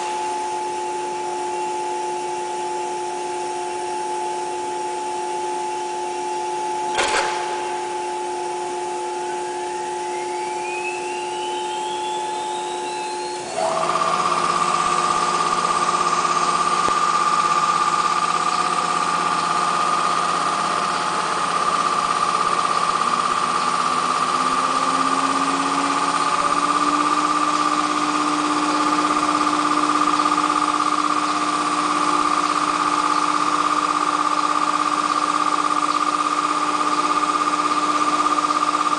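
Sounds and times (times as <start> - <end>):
router spindle whine: 0.0 - 38.9
sharp click: 6.9 - 7.7
low tone rising in pitch: 7.5 - 31.0.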